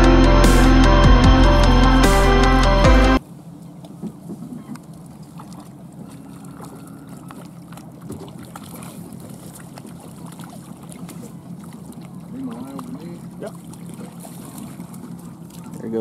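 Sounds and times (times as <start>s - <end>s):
boat humming: 0.0s - 16.0s
fish splashing at surface: 4.9s - 15.8s.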